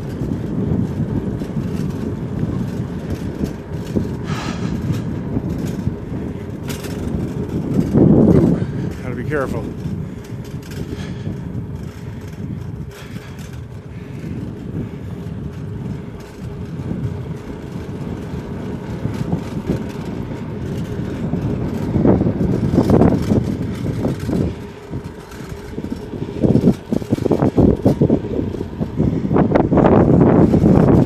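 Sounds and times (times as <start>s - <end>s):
wind buffeting microphone: 0.0s - 31.0s.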